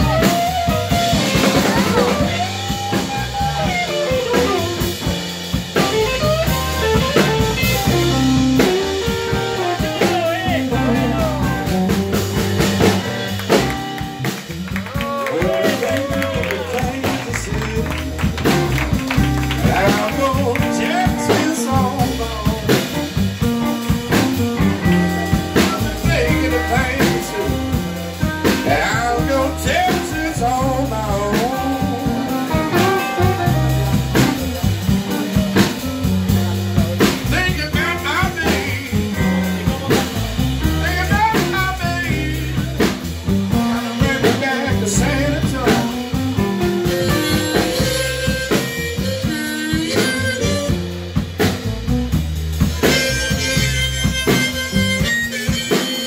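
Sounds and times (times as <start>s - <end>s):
blues band playing: 0.0s - 56.0s
harmonica: 46.9s - 51.0s, 52.8s - 56.0s.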